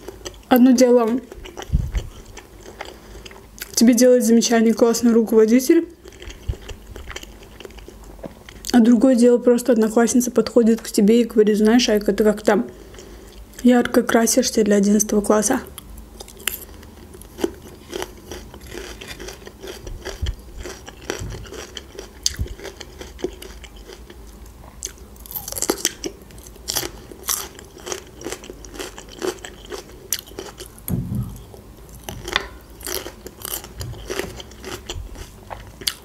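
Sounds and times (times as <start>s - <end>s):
crunchy chewing of bell pepper: 1.2s - 3.8s, 5.9s - 8.8s, 15.8s - 36.0s.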